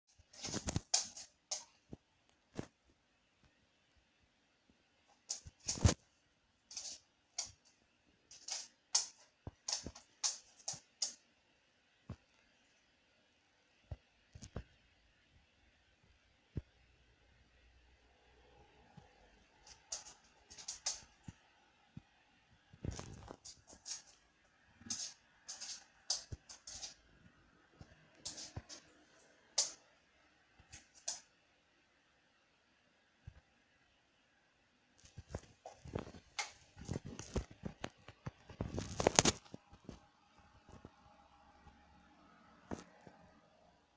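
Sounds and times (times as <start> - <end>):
dog claws tapping on floor: 0.2 - 1.8, 6.7 - 7.7, 8.3 - 11.2, 19.7 - 21.1, 24.9 - 27.0, 28.2 - 28.9, 29.6 - 29.8.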